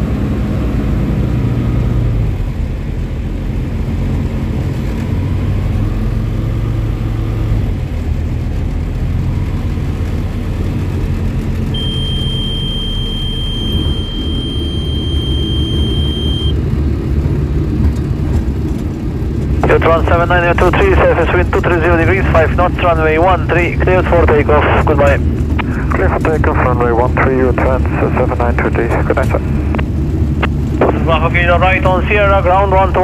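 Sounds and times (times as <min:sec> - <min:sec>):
steady high beep: 0:11.7 - 0:16.6.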